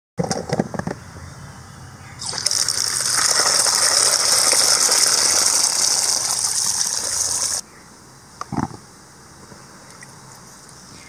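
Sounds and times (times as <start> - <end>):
water pouring into plastic basin: 2.2 - 7.6.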